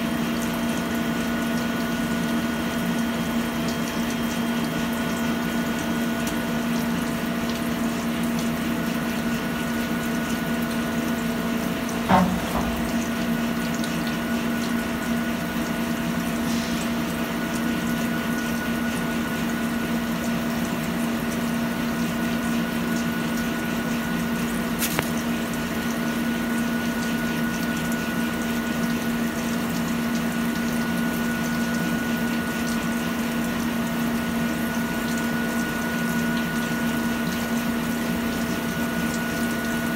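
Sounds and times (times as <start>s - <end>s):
sharp knock: 12.1s - 13.3s.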